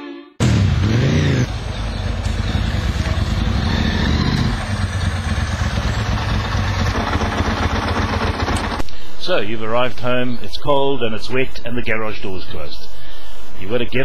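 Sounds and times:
motorcycle engine running: 0.4s - 8.8s.

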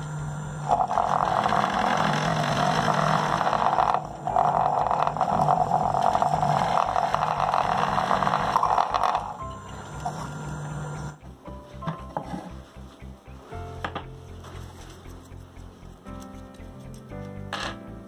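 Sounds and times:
drill bit cutting plastic: 0.0s - 11.2s
drill motor humming: 0.0s - 11.2s.

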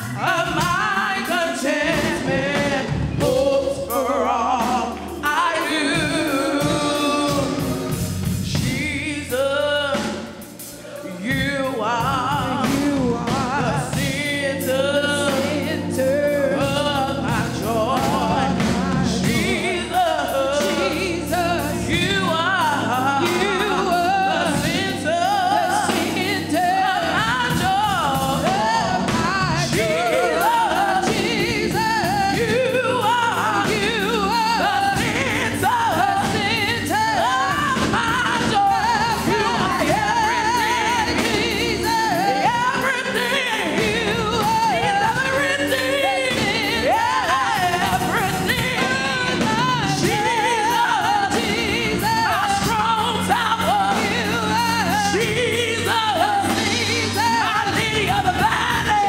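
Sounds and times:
instrumental backing with bass line: 0.0s - 59.0s
woman singing gospel solo: 0.0s - 59.0s.

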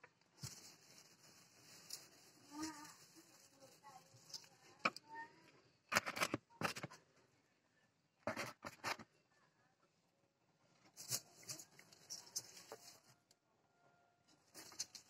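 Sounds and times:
hands rustling dry straw: 0.3s - 4.6s.

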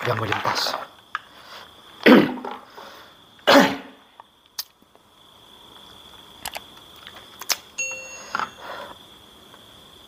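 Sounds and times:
man coughing: 2.0s - 2.5s, 3.5s - 4.0s
faint high whine: 7.7s - 10.0s.

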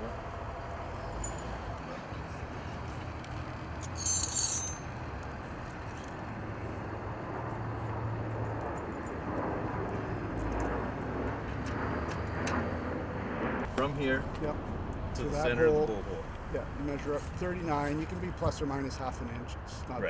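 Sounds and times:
high metallic jingle: 1.0s - 1.8s, 3.8s - 5.2s.

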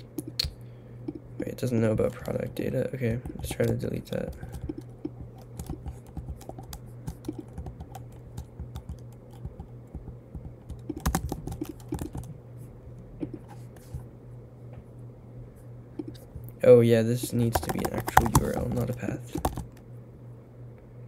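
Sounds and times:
keyboard typing: 3.2s - 12.4s, 17.2s - 19.8s.

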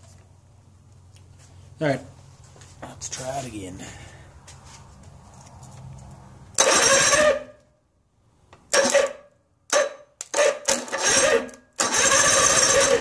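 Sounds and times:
electric starter cranking engine: 6.5s - 7.6s, 8.7s - 13.0s.

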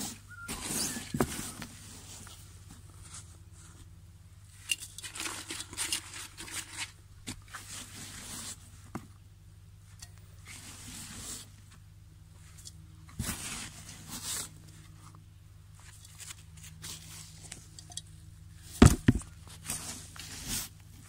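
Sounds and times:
gloved hand mixing soil: 5.0s - 8.8s, 19.4s - 21.0s.

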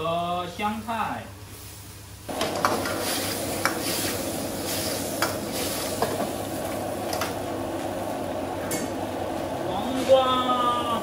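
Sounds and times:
food sizzling in a wok: 1.5s - 7.0s.

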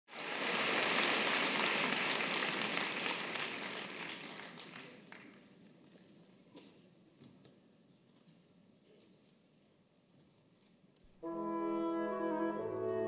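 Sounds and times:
audience applauding: 0.1s - 5.5s.

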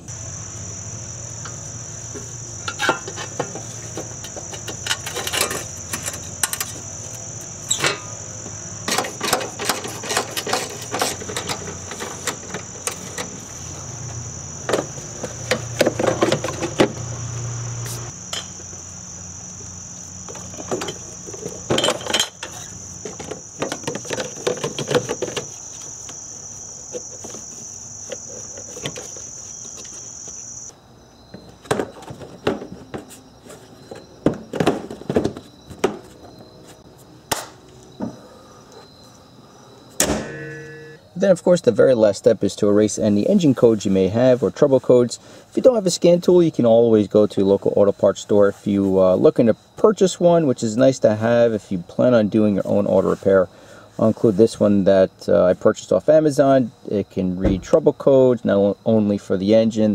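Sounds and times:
high-pitched insect trill: 0.0s - 45.0s
metal and plastic parts clattering: 2.6s - 6.8s, 8.8s - 13.5s, 14.7s - 17.0s, 20.3s - 25.6s
low hum: 40.2s - 41.0s.

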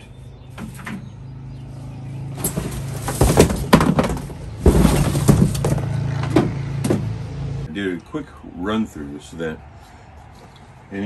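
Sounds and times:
cardboard box scraping and rustling: 2.4s - 6.5s.

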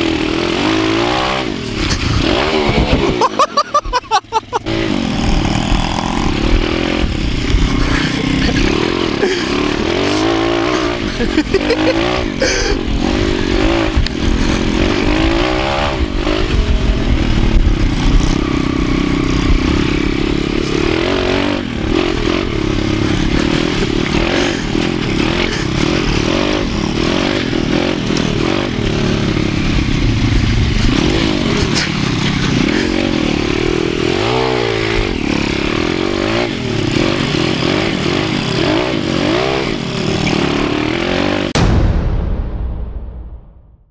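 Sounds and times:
motorbike engine revving: 0.0s - 41.6s
wind noise: 1.6s - 3.3s, 5.1s - 8.8s, 12.2s - 27.8s
short sound effect: 41.6s - 43.9s.

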